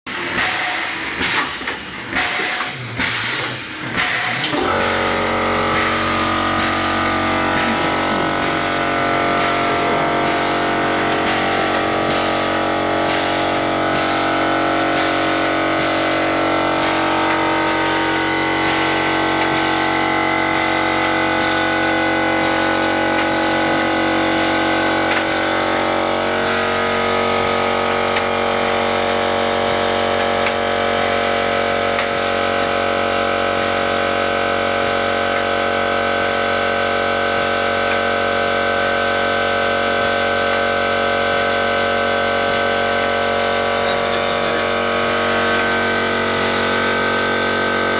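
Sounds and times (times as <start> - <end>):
pneumatic motor whine: 0.1 - 47.9.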